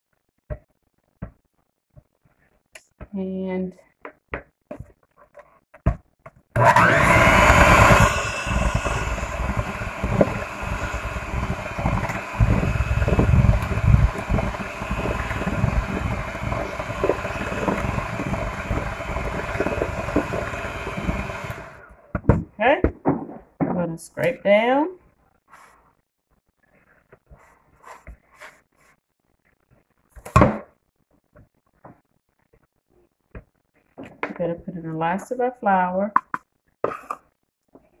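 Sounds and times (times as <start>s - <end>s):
electric hand mixer running: 6.6s - 22.0s.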